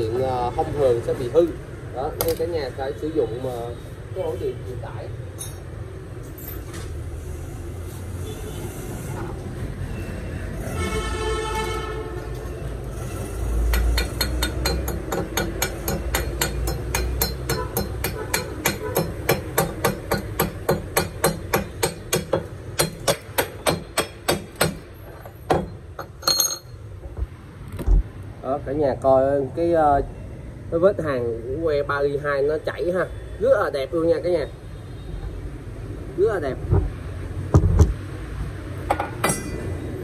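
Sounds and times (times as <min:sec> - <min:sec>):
hammer strikes on metal: 0:13.6 - 0:26.6, 0:38.9 - 0:39.8.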